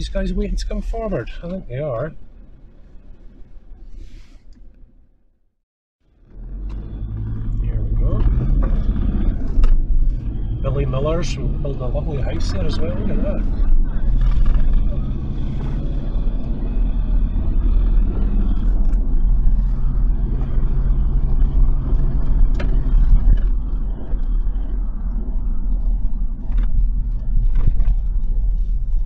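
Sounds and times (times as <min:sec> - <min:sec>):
diesel engine running: 0:00.0 - 0:05.3, 0:06.0 - 0:29.0
low road rumble: 0:00.0 - 0:29.0.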